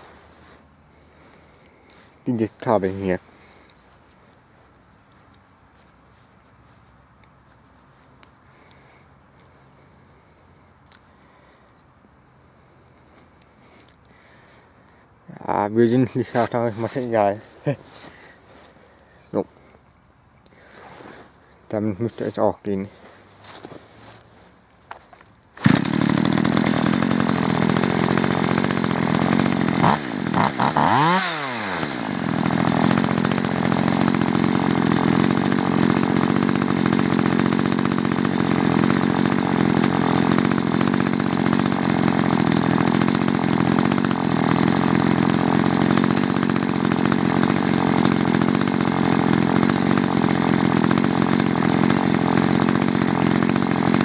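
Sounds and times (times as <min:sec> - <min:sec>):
two-stroke chainsaw engine running: 0:00.9 - 0:06.2, 0:08.5 - 0:09.0, 0:25.6 - 0:54.0
chainsaw pull-start cord: 0:00.9 - 0:06.3, 0:16.1 - 0:18.7, 0:24.9 - 0:54.0.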